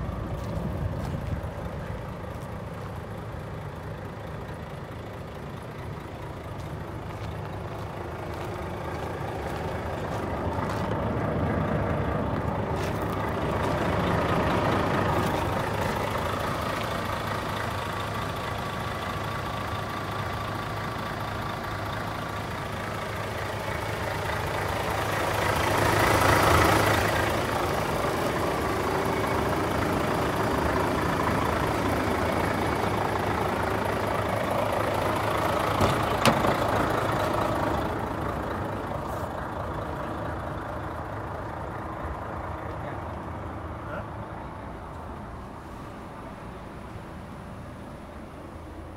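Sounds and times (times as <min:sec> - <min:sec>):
diesel engine idling: 0:00.0 - 0:48.9.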